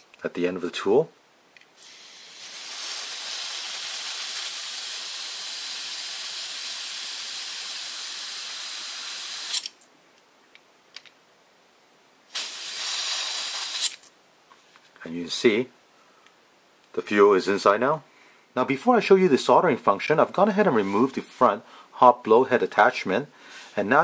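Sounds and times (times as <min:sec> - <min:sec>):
gas hissing: 0:01.8 - 0:09.7, 0:12.3 - 0:14.0.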